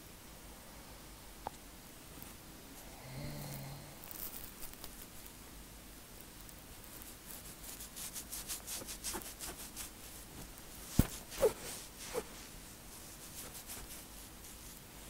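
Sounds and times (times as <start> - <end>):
fingertips scratching scalp: 6.8 - 10.3, 10.9 - 14.8.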